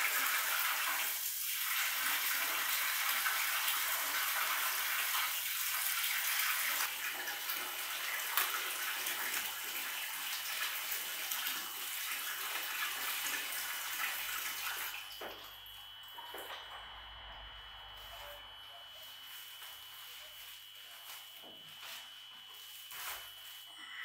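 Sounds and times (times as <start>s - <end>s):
water running from a tap: 0.0s - 16.6s.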